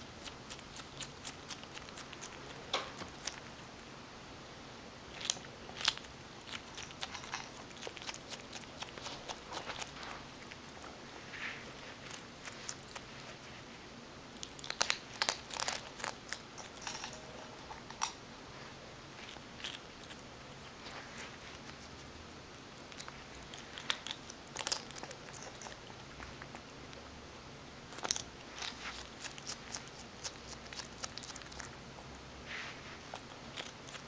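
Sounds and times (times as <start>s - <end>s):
animal chewing and smacking: 0.0s - 3.8s, 5.1s - 13.6s, 19.2s - 27.1s, 27.9s - 32.1s, 33.0s - 34.0s.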